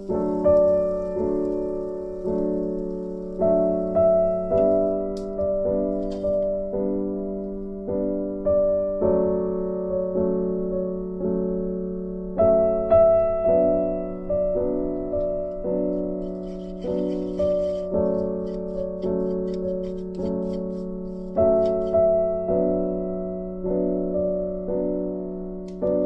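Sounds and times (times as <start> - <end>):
piano music: 0.0 - 26.0.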